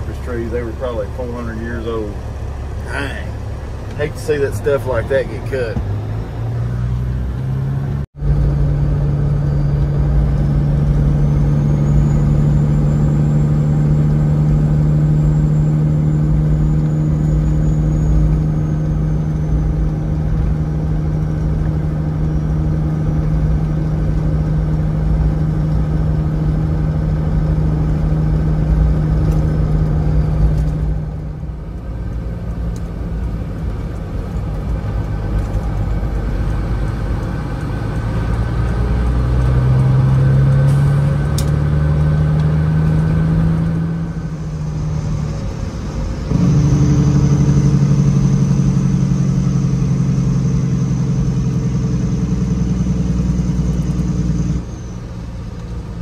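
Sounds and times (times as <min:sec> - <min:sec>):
truck diesel engine drone: 0:00.0 - 0:56.0.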